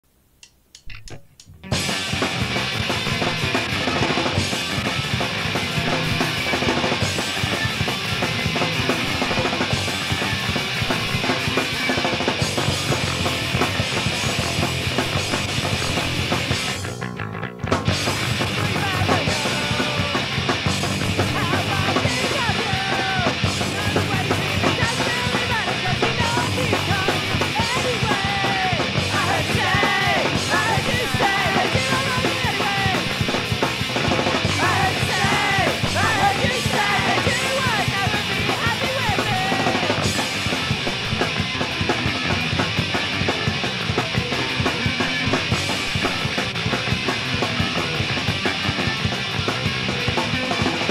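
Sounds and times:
punk rock band playing: 0.9 - 50.9
lead vocal singing: 18.4 - 20.5, 21.2 - 33.4, 34.4 - 40.2.

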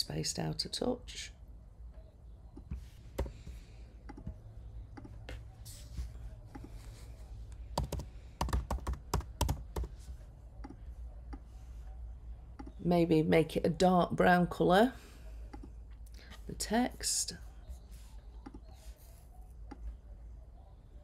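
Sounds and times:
keyboard typing: 7.7 - 10.0.

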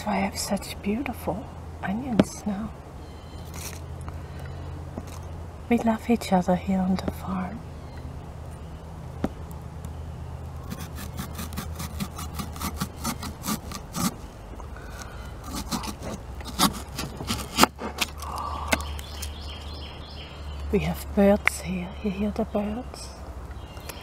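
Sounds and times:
steady low hum: 0.0 - 24.0
crunching and chewing onion: 10.6 - 19.4.

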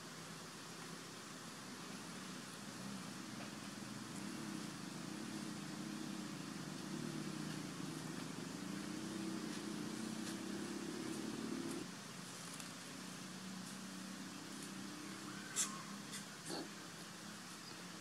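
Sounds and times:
low wavering engine drone: 1.9 - 11.9.

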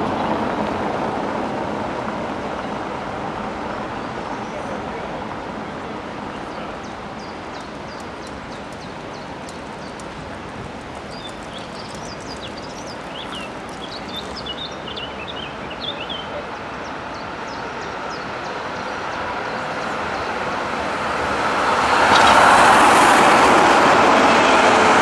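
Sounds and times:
street traffic noise: 0.0 - 25.0
tram on street tracks: 0.0 - 25.0
birds chirping: 6.2 - 20.6, 21.9 - 23.1.

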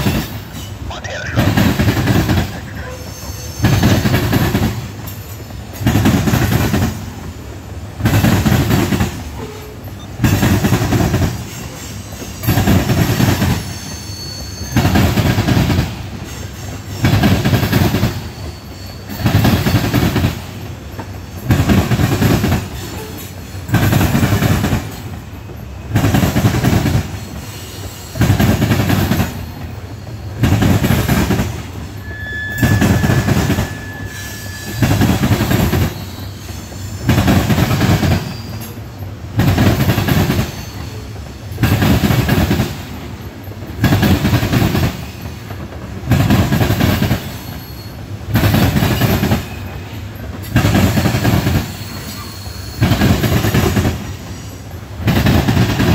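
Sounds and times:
train wheels clattering over rails: 0.0 - 55.9
faint high wheel squeal: 2.6 - 5.8, 11.3 - 15.3, 16.2 - 21.5, 27.0 - 28.5, 29.1 - 30.6, 31.7 - 39.2, 40.2 - 41.8, 47.0 - 55.0.

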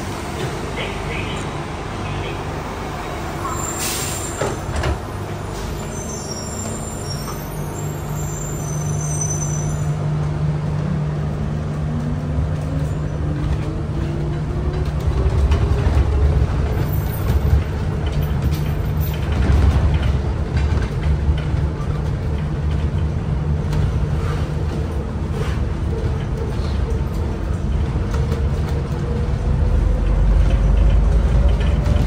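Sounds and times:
train running rumble: 9.7 - 32.0.

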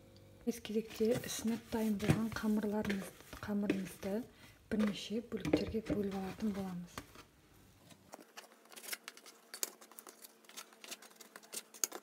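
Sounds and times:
scraper clicking and tapping on board: 8.2 - 12.0.

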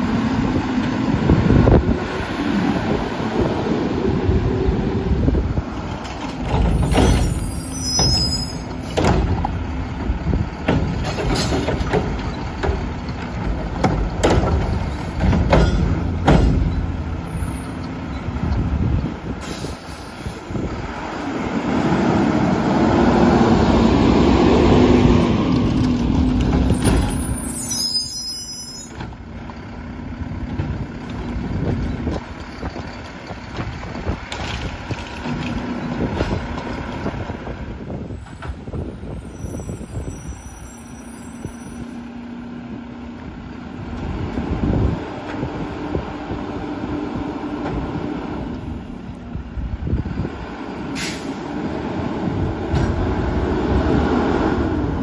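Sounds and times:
diesel engine running: 0.0 - 27.6, 29.0 - 55.0
carts and arm clanking: 5.7 - 18.7
air brakes hissing: 19.4 - 20.6, 39.1 - 42.0, 50.9 - 51.5.

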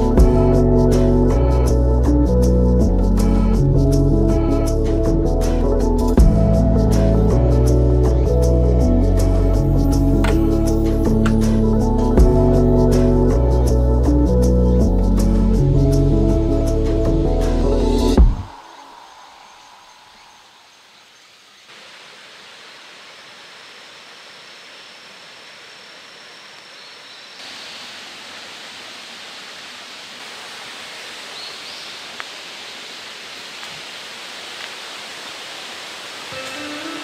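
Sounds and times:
mountain stream rushing: 27.3 - 37.0.

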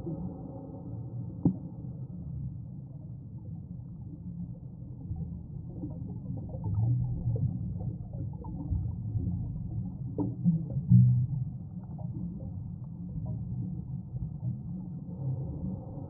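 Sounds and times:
low underwater rumble: 0.0 - 16.0
exhaled air bubbles gurgling: 3.2 - 16.0.

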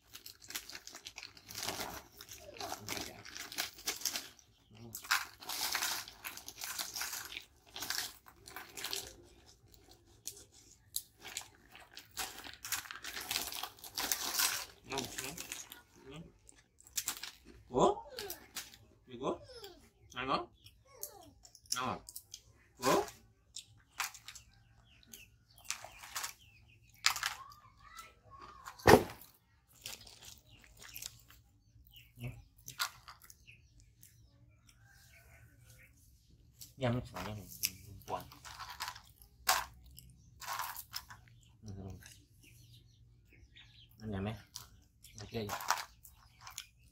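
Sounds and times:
plastic snack bag crinkling: 0.0 - 17.6, 25.6 - 28.0, 28.6 - 31.4, 37.2 - 41.4, 44.6 - 46.9
crunching crisp snacks: 0.0 - 18.9, 20.7 - 34.8, 36.5 - 42.3, 43.9 - 46.9.

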